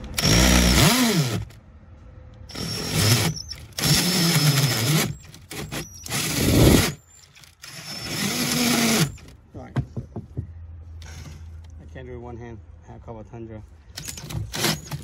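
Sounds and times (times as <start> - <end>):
cordless drill with hole saw: 0.1 - 1.5, 2.5 - 9.2, 14.0 - 15.0.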